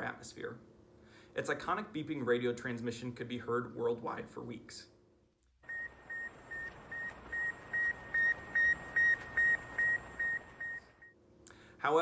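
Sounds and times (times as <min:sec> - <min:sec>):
short high radio beeps: 0:05.7 - 0:11.1.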